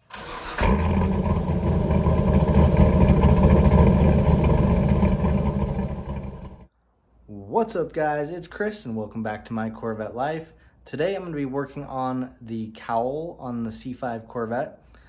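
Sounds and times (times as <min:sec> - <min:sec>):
car engine idling: 0:00.1 - 0:06.7.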